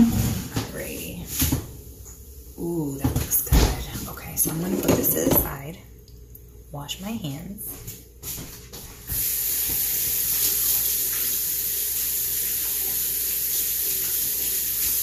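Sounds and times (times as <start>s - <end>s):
faucet water running: 9.0s - 15.0s.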